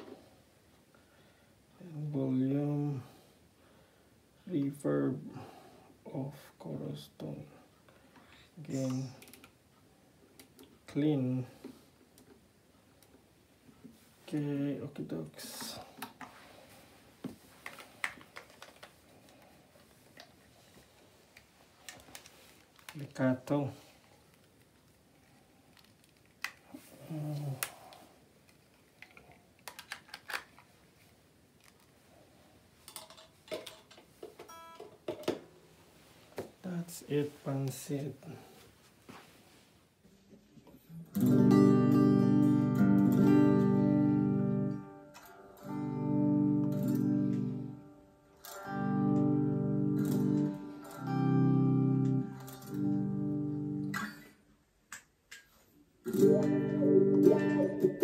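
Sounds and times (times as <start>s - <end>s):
plastic and metal clicks: 28.5s - 30.7s
electric guitar chords: 41.1s - 54.2s, 56.1s - 58.0s.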